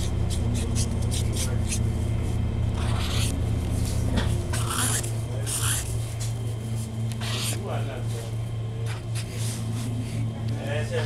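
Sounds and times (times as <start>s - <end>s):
pen scratching on paper: 2.8s - 3.4s, 4.6s - 6.0s, 7.1s - 7.6s.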